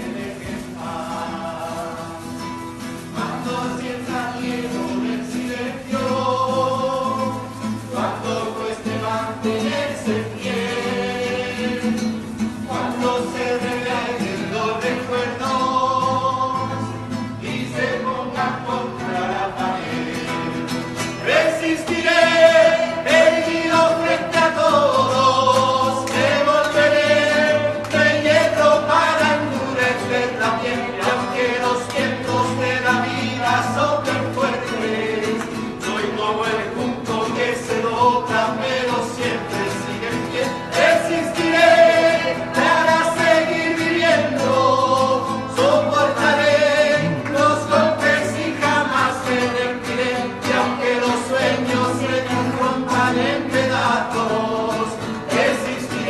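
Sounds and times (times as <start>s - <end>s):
acoustic guitar: 0.0s - 56.0s
person singing: 21.2s - 56.0s.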